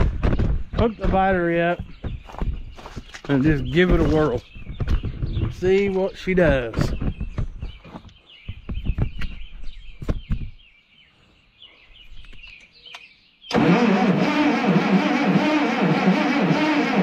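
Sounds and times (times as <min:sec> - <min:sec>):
birds chirping: 0:00.0 - 0:17.0
tractor starter cranking engine: 0:13.5 - 0:17.0.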